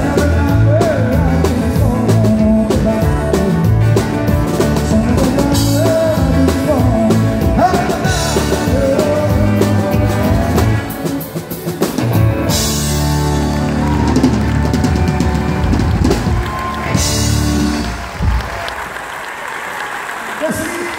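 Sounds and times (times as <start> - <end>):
man singing: 0.0 - 11.4
country band playing: 0.0 - 19.0.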